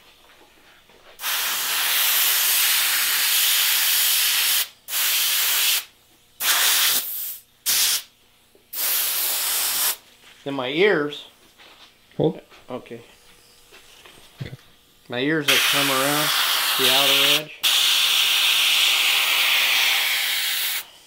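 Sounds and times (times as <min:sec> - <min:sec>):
airbrush spraying air bursts: 0:01.2 - 0:08.1, 0:08.7 - 0:10.1, 0:15.5 - 0:21.0.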